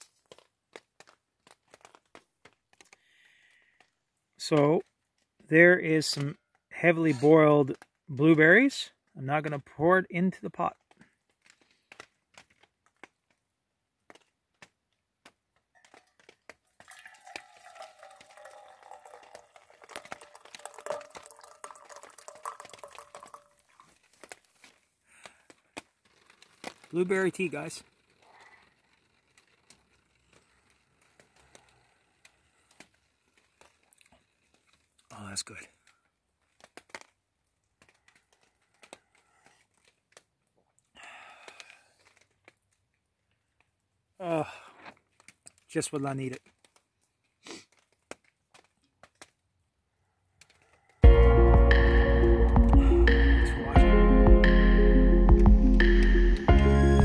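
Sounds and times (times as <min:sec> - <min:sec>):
rain dripping on plastic tarp: 0:00.0 - 0:06.8, 0:07.6 - 0:49.4
drips and clicks: 0:15.8 - 0:25.6
tea pouring into metal cup: 0:16.7 - 0:24.4
person breathing out: 0:40.9 - 0:42.2, 0:44.4 - 0:45.0.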